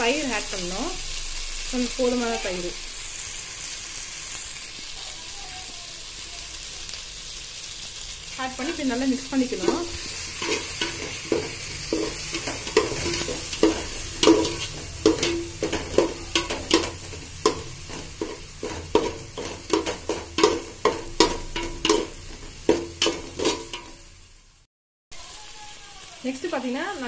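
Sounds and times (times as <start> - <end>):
frying hiss: 0.0 - 27.0
spatula scraping metal pot: 8.5 - 24.0.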